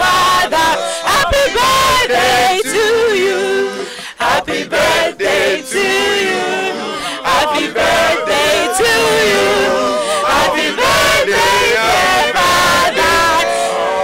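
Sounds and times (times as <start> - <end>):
woman singing into a microphone: 0.0 - 4.2
group singing together: 0.0 - 14.0.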